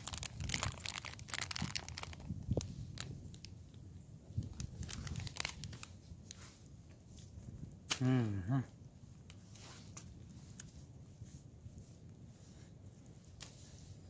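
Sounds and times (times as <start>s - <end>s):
plastic wrapper crinkling: 0.0s - 3.5s, 4.4s - 5.9s.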